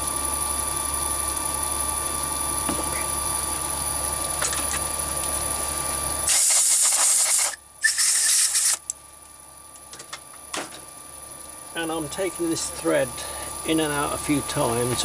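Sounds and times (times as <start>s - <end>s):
loud hissing sprays: 6.3s - 8.8s.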